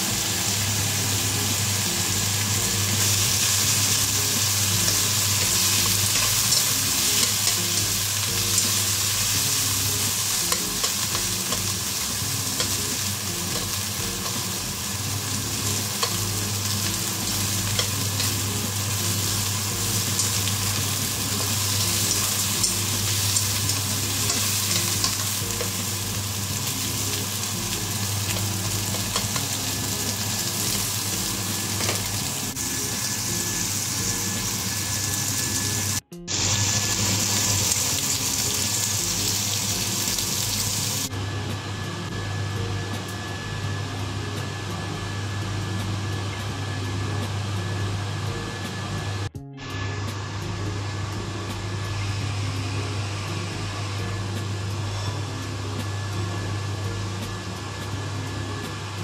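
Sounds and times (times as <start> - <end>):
meat sizzling in a wok: 0.0 - 41.1
low hum: 0.0 - 59.0.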